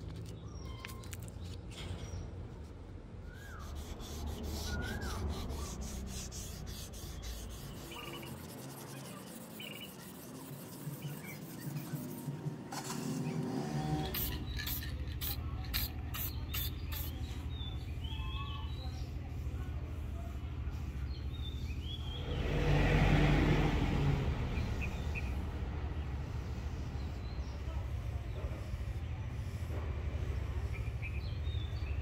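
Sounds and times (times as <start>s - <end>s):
abrasive paper rubbing on steel: 3.4s - 17.9s.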